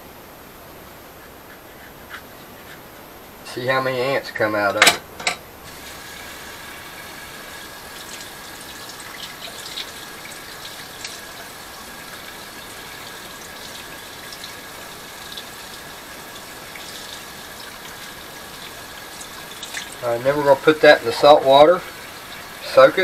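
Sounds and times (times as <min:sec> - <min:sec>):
faucet running into sink: 0:05.7 - 0:23.0.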